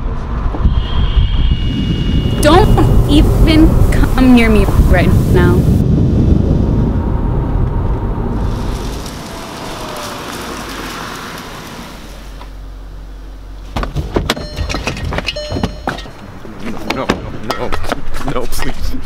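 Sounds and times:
car road noise: 0.0s - 19.0s
short ringing tones: 14.4s - 16.1s.

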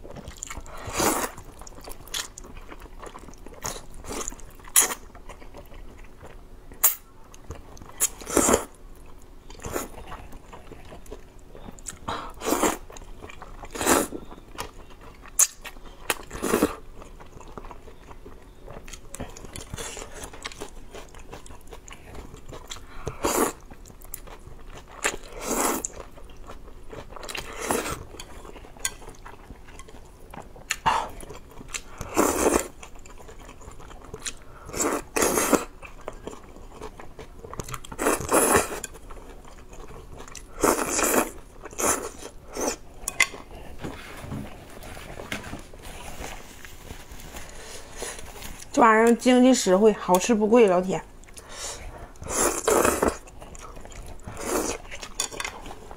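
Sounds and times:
chewing: 0.0s - 43.9s, 51.2s - 55.9s
wet noodle slurping: 38.0s - 38.8s, 40.4s - 42.8s, 51.4s - 55.1s.

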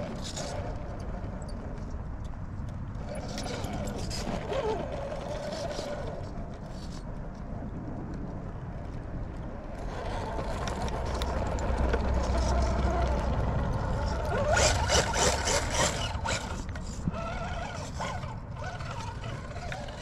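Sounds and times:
electric motor whining: 12.2s - 20.0s.

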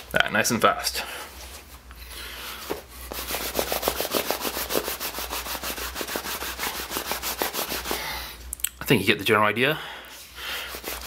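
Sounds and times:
cloth scrubbing leather: 3.0s - 8.1s, 10.7s - 11.0s.

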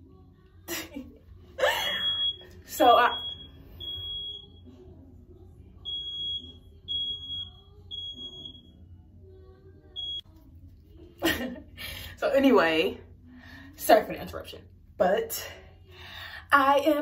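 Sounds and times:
smoke alarm beeping: 1.8s - 4.7s, 5.8s - 8.8s, 10.0s - 10.2s.

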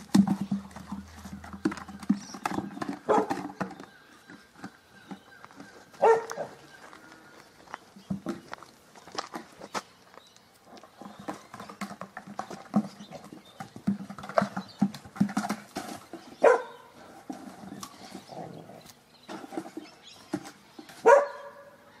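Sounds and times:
dogs barking: 3.0s - 3.4s, 6.0s - 6.6s, 16.4s - 16.9s, 21.0s - 21.8s.

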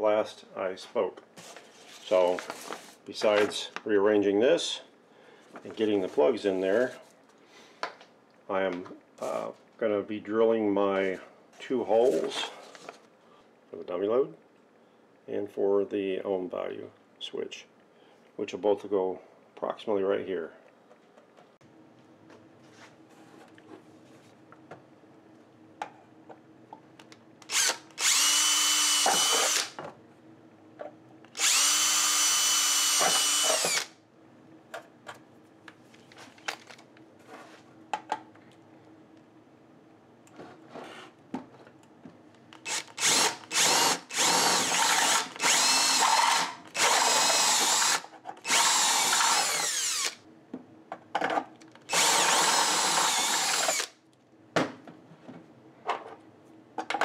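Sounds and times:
cordless drill boring: 27.5s - 29.8s, 31.4s - 33.9s, 42.6s - 50.2s, 51.9s - 53.9s.

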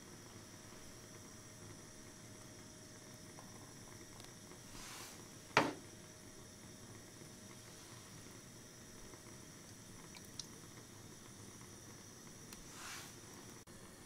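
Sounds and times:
ramekin knock: 5.6s - 5.8s.

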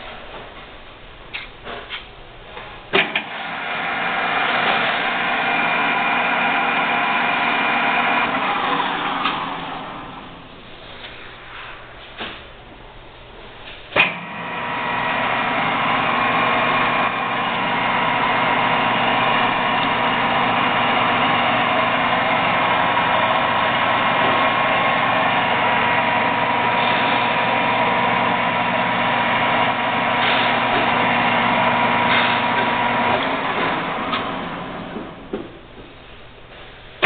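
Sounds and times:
metal lathe motor whining: 3.2s - 10.4s, 14.1s - 35.2s.

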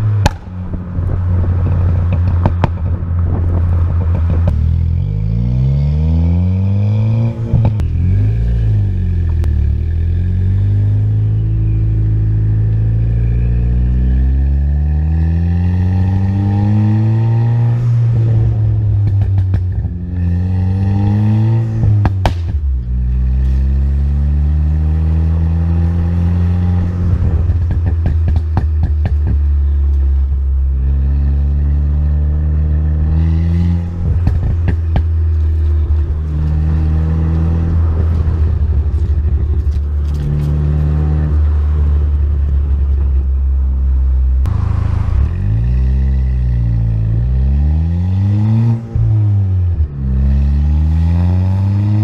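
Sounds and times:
exhaust crackles and pops: 0.0s - 4.7s, 18.9s - 20.0s, 21.8s - 23.6s, 27.2s - 30.5s, 34.0s - 36.6s, 37.7s - 41.4s
car engine revving: 0.0s - 52.0s.

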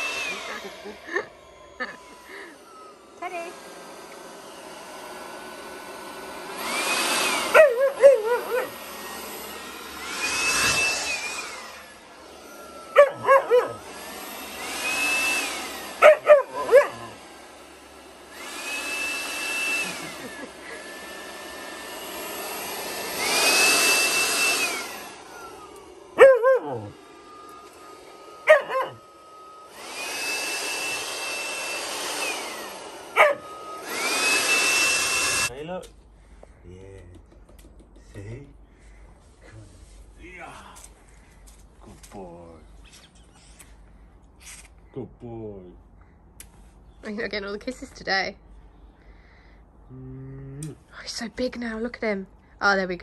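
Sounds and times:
leaf blower motor whine: 0.0s - 35.8s, 38.8s - 44.8s
puppy barking: 7.5s - 8.8s, 12.9s - 13.8s, 16.0s - 17.2s, 26.2s - 26.9s, 28.5s - 29.0s, 33.2s - 33.5s.

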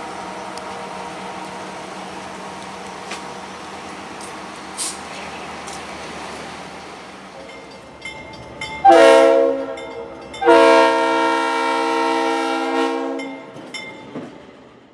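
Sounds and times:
locomotive air horn blasts: 8.8s - 13.4s.

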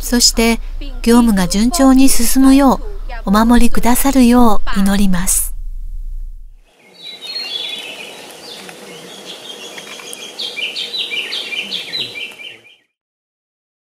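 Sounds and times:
faint background hiss: 0.0s - 12.8s
songbird singing falling notes: 6.8s - 12.9s.

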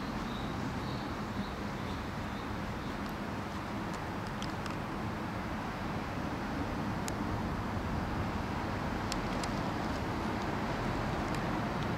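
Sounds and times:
low outdoor rumble: 0.0s - 11.9s.

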